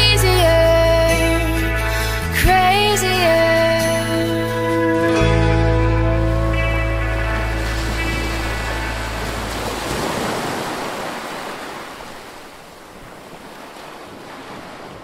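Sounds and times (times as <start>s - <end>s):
low music notes: 0.0s - 10.0s
ocean surf on rocky shore: 6.2s - 15.0s.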